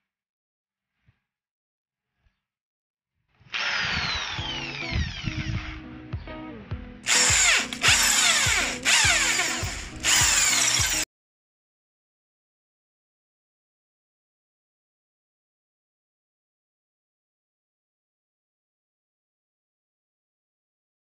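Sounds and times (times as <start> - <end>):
cordless power tool running: 3.5 - 5.8, 7.1 - 11.0.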